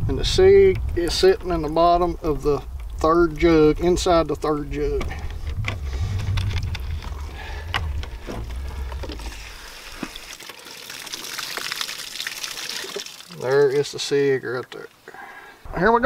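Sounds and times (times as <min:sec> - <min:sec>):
low rumble: 0:00.0 - 0:10.3
plastic bottle crackling: 0:05.0 - 0:13.8
water pouring and splashing: 0:05.0 - 0:14.1.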